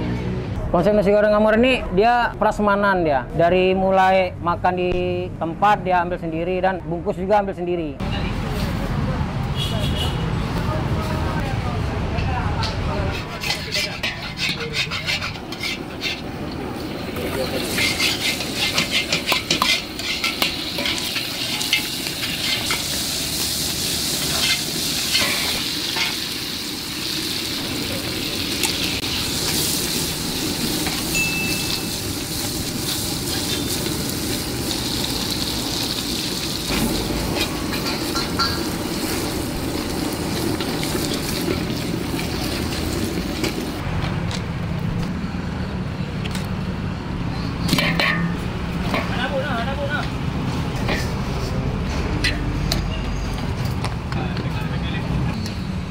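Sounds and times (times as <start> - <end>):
metal spatula scraping wok: 12.6 - 34.4, 36.5 - 43.8, 47.4 - 49.4, 50.5 - 53.0
oil sizzling in a wok: 13.0 - 43.8.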